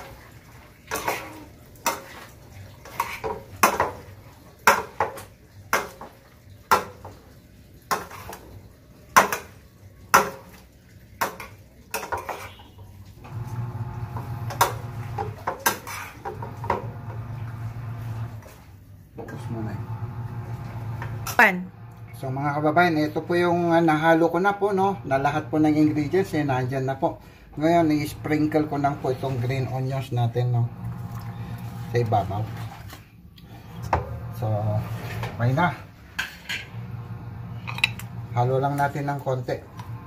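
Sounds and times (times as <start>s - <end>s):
metal spoon scraping frying pan: 0.9s - 3.9s, 11.3s - 12.8s, 14.5s - 16.8s, 36.1s - 36.8s
low steady hum: 19.3s - 23.4s.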